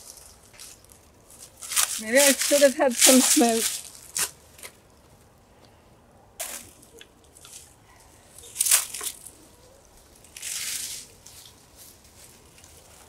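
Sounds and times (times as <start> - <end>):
footsteps crunching dry leaves: 0.0 - 4.4, 6.4 - 9.4, 10.0 - 13.0.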